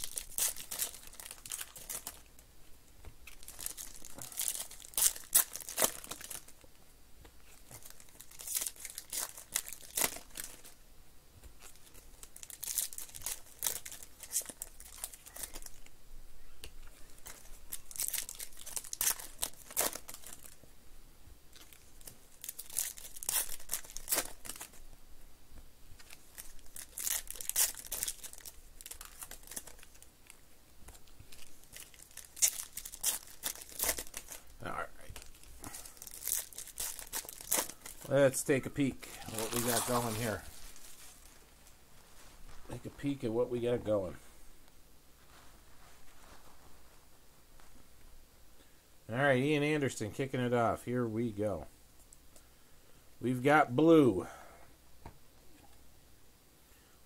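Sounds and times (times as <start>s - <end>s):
foil wrappers tearing and crinkling: 0.0s - 2.3s, 3.2s - 6.6s, 7.6s - 10.8s, 11.6s - 15.9s, 17.1s - 20.6s, 21.5s - 24.8s, 26.0s - 30.4s, 31.3s - 34.6s, 35.2s - 38.4s, 39.0s - 41.4s.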